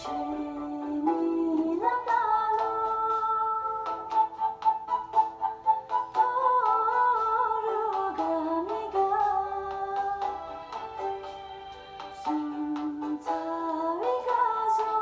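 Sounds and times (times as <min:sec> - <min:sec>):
woman singing: 0:00.0 - 0:04.4, 0:06.2 - 0:10.8, 0:12.2 - 0:15.0.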